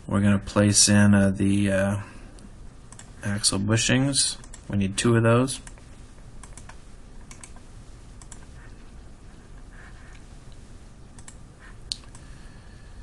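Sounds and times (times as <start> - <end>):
faint steady hiss: 0.0 - 13.0
computer mouse clicks: 2.9 - 3.1, 4.4 - 4.6, 5.6 - 5.8, 6.4 - 7.6, 8.2 - 8.5, 11.2 - 12.3.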